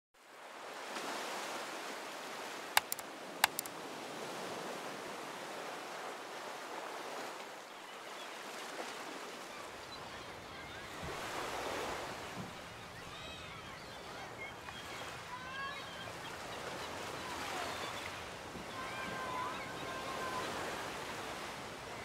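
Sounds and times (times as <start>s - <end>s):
ocean surf washing: 0.3s - 22.0s
sharp clicks: 2.8s - 3.7s.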